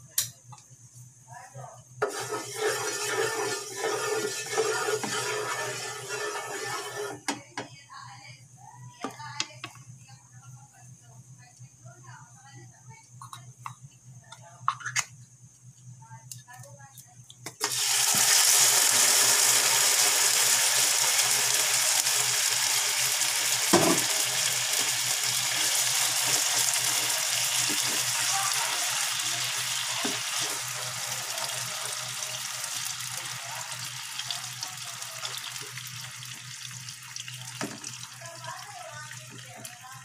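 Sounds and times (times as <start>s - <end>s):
meat sizzling in oil: 2.0s - 7.1s, 17.6s - 39.8s
spatula scraping pan: 2.0s - 7.4s, 22.7s - 33.3s.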